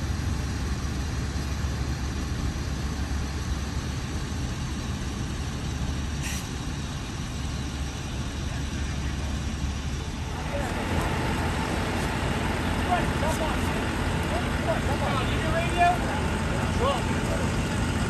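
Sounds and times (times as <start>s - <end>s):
truck engines idling: 0.0s - 18.0s
brief hiss: 6.2s - 6.6s.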